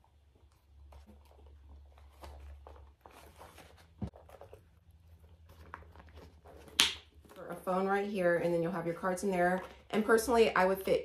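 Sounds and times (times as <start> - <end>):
wallet rustling into handbag: 0.0 - 7.9.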